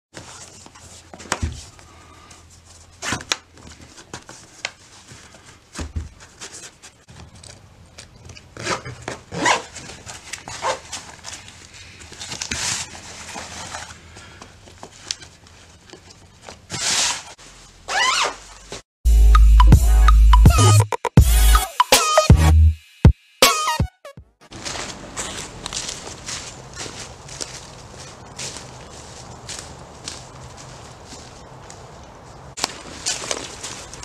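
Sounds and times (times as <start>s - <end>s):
fabric rustling and rubbing: 9.4s - 14.0s, 16.7s - 18.8s.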